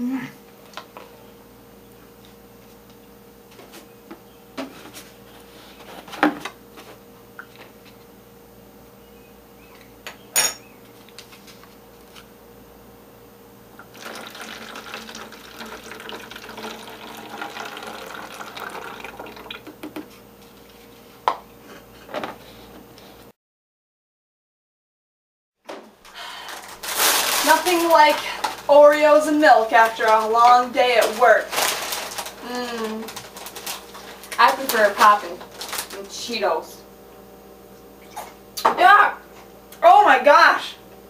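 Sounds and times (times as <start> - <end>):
milk pouring into plastic jug: 13.8 - 19.7.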